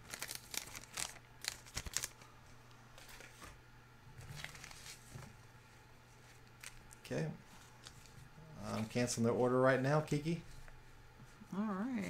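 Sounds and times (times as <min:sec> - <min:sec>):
handling crinkles and clicks: 0:00.0 - 0:02.3
low steady hum: 0:00.0 - 0:12.0.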